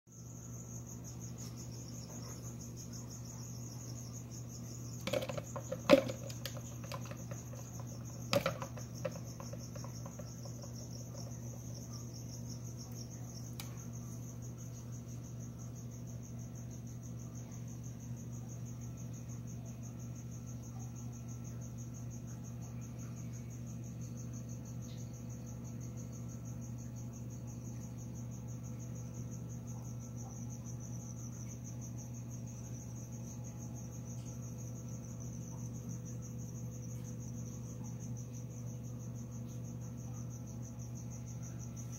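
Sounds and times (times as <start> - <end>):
crickets chirping: 0.1 - 41.9
sharp clicks and knocks: 5.0 - 11.5.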